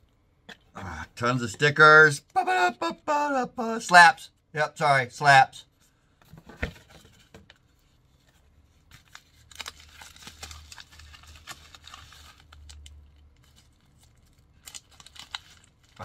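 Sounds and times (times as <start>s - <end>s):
plastic packaging crinkling: 9.0s - 16.0s.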